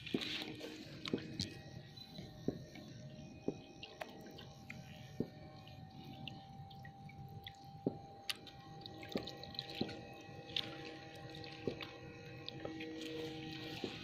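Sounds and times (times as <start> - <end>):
faint steady whine: 0.0 - 14.0
shallow water splashing: 6.2 - 14.0.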